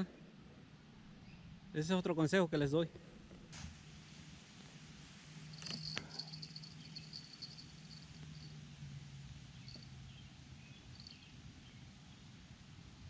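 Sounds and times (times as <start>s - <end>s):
low steady hum: 0.0s - 13.0s
thin high chirping: 5.6s - 8.2s.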